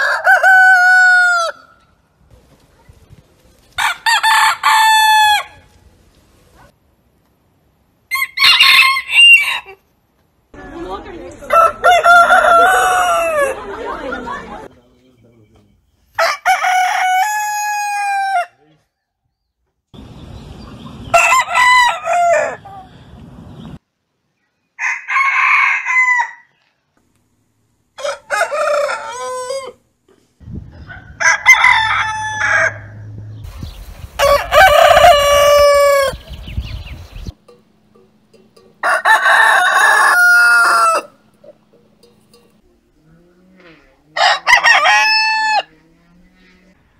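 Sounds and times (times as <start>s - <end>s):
roosters crowing: 0.0s - 2.0s, 3.7s - 5.8s, 8.1s - 9.9s, 11.4s - 14.7s, 16.1s - 18.6s, 20.9s - 23.1s, 24.8s - 26.7s, 27.9s - 29.9s, 30.7s - 46.9s.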